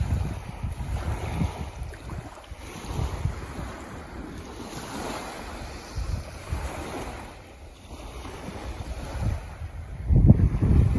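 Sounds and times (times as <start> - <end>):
small waves washing onto sand: 0.0 - 10.9
wind buffeting microphone: 0.0 - 10.9.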